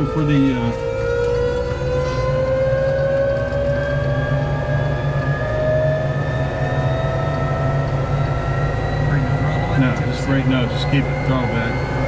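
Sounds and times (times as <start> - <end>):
jet engine whine rising: 0.0 - 12.0
low engine rumble: 0.0 - 12.0.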